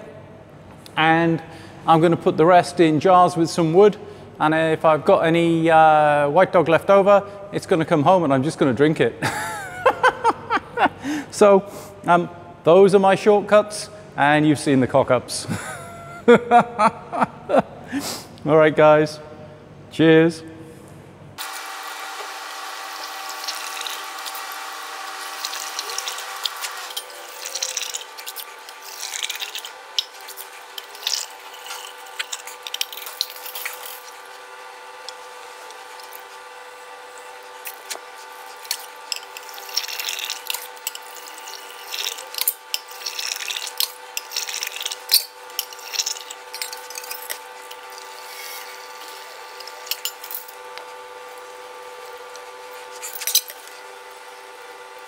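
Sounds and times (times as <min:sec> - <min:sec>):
steady machine hum: 0:08.6 - 0:12.8, 0:15.1 - 0:55.0
liquid pouring through funnel: 0:23.0 - 0:34.3, 0:37.7 - 0:49.3
glass jars clinking: 0:25.3 - 0:34.3, 0:38.6 - 0:50.6.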